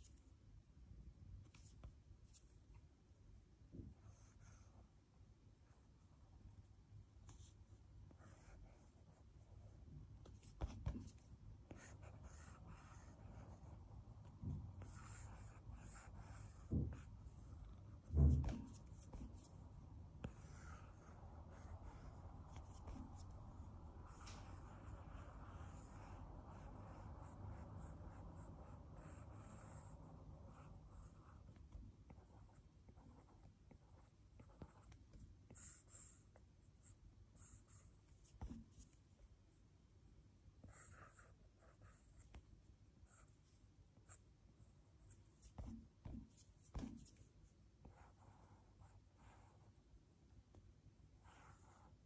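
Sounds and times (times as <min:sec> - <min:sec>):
knock: 0:18.1 - 0:18.7.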